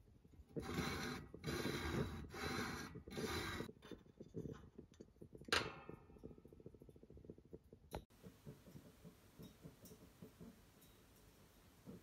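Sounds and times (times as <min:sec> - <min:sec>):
metal plate scraping on metal: 0:00.6 - 0:03.7.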